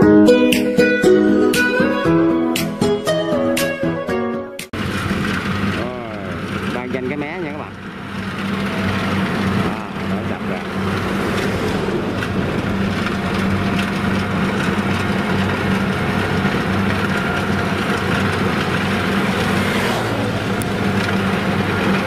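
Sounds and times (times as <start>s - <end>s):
combine harvester diesel engine: 4.8s - 22.0s
threshing drum running: 4.8s - 22.0s.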